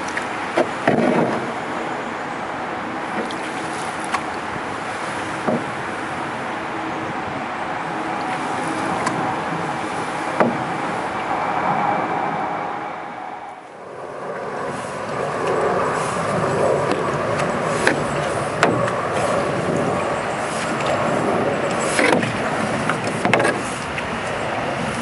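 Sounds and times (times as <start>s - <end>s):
paddle strokes in water: 0.0s - 12.1s, 14.2s - 25.0s
wind buffeting microphone: 0.0s - 25.0s
paddle knocking against hull: 0.1s - 1.6s, 5.2s - 6.0s, 10.3s - 10.9s, 16.8s - 19.8s, 21.7s - 24.1s.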